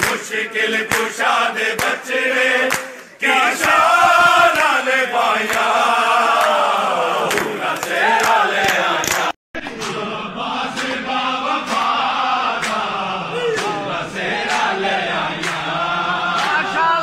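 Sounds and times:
crowd of men chanting: 0:00.0 - 0:17.0
sharp rhythmic beat: 0:09.6 - 0:17.0.

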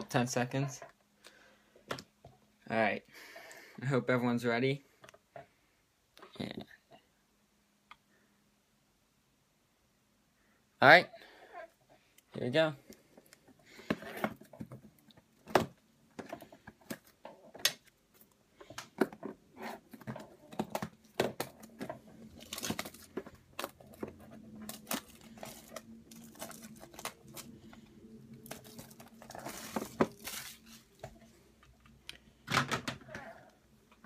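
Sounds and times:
plastic wrap crinkling: 0:20.1 - 0:31.2.

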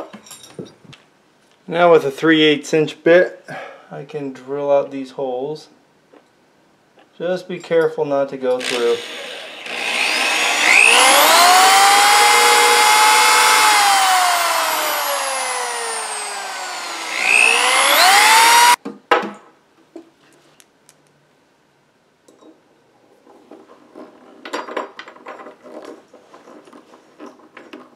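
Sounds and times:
electric drill boring into wood: 0:08.6 - 0:18.8.

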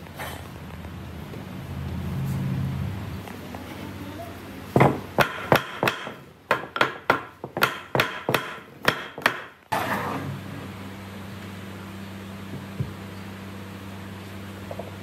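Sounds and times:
wooden mallet knocking on wood: 0:04.8 - 0:09.5
board scraping across workbench: 0:09.7 - 0:10.4.

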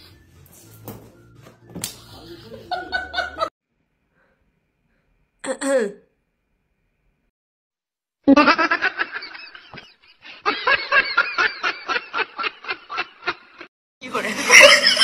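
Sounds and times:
person laughing: 0:02.0 - 0:03.5, 0:08.3 - 0:15.0.

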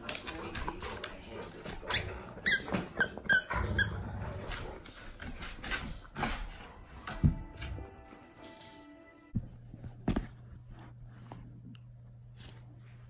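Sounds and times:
dog chewing toy: 0:00.0 - 0:05.6
squeaky toy squeaking: 0:01.9 - 0:03.9.

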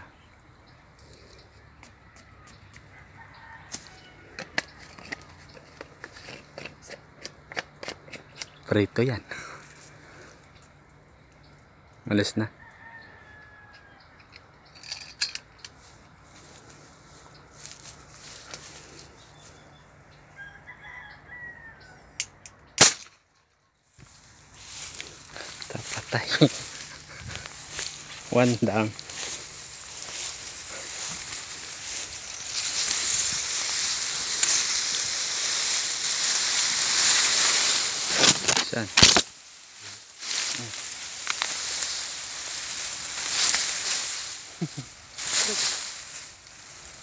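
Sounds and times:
rooster crowing: 0:01.5 - 0:05.2, 0:12.5 - 0:14.4, 0:20.2 - 0:22.2
sharp clicks and rustles: 0:03.7 - 0:08.7, 0:24.7 - 0:46.3
loud sharp gunshot: 0:22.8 - 0:23.2.

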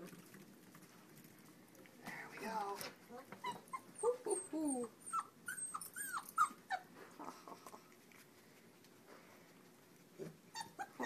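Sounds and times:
puppy whimpering: 0:03.4 - 0:07.9, 0:10.2 - 0:11.0.

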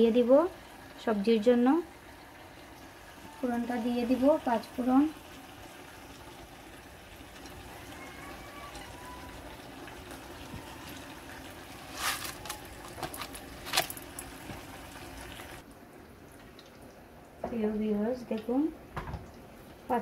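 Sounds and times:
hot oil sizzling: 0:00.0 - 0:15.7
seeds crackling and popping in oil: 0:08.6 - 0:15.6.

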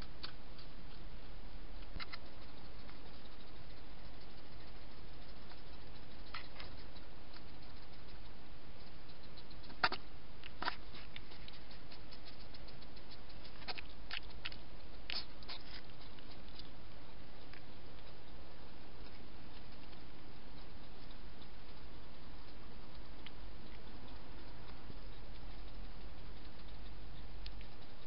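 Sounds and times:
hedgehog lapping water: 0:02.0 - 0:18.4, 0:19.0 - 0:28.0.

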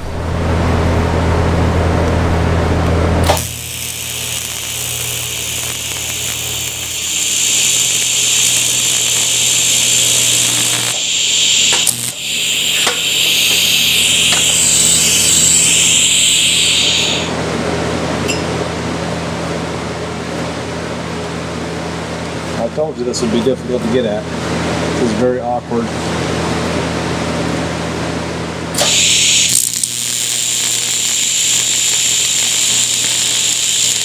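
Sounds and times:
low hum: 0:00.0 - 0:17.8
welding arc buzzing hiss: 0:03.2 - 0:17.4, 0:28.8 - 0:34.0.

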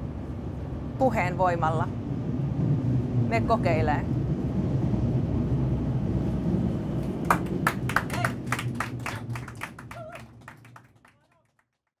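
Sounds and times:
metro train rumbling: 0:00.0 - 0:11.6
passengers clapping: 0:07.0 - 0:12.0.

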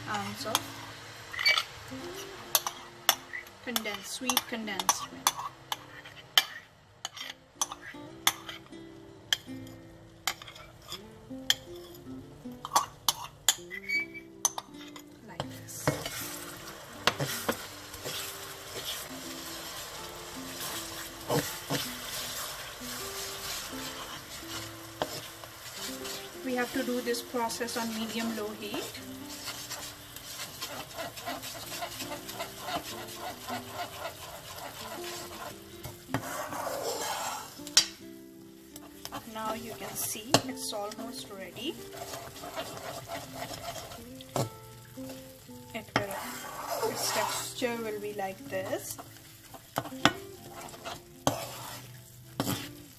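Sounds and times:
background music: 0:00.0 - 0:52.9
pan sizzling: 0:00.0 - 0:52.9
metal spoon scraping glass jar: 0:13.1 - 0:14.9, 0:36.1 - 0:37.6.

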